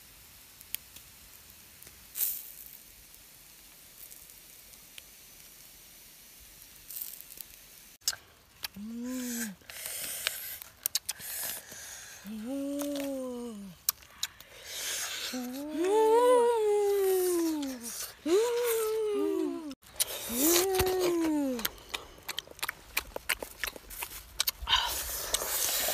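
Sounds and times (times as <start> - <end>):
meat sizzling over embers: 0.0 - 25.9
embers crackling: 0.4 - 25.9
hands tearing roasted meat: 8.0 - 12.0, 19.8 - 25.9
person humming: 8.7 - 9.6, 12.2 - 13.8, 15.1 - 22.3.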